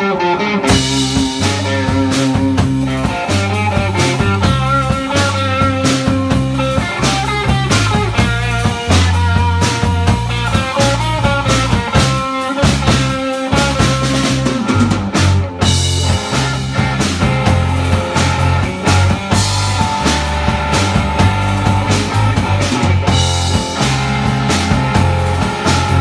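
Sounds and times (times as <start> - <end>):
electric guitar lead: 0.0 - 26.0
rock band playing: 0.0 - 26.0
drums steady beat: 0.6 - 26.0.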